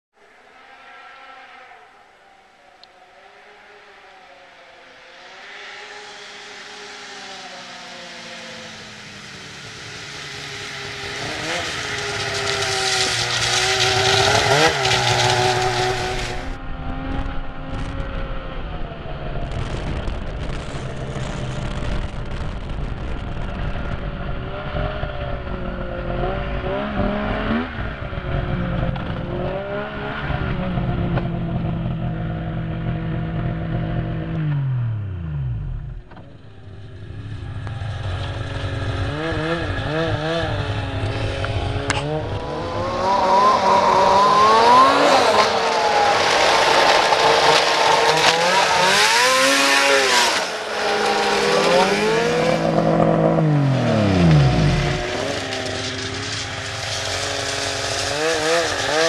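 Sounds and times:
loud rushing hiss: 5.5s - 16.5s
snowmobile engine running: 5.8s - 59.0s.

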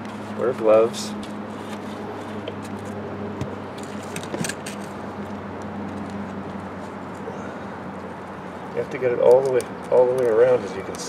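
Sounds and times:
steady low hum: 0.0s - 11.0s
clicks and scrapes of pipe fittings: 9.2s - 11.0s.

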